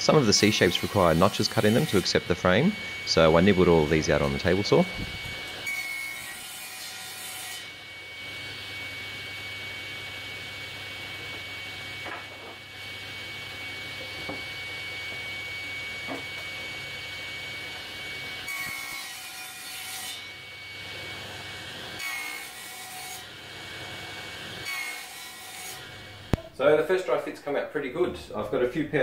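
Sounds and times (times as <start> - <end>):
table saw whining: 0.0 - 26.7
saw blade cutting plywood: 0.1 - 7.8, 17.6 - 26.5.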